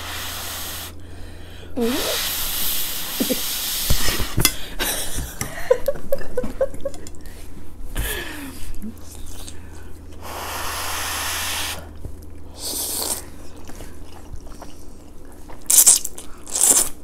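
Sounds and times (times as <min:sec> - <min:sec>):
breathy hiss: 0:00.0 - 0:03.9, 0:10.2 - 0:11.9.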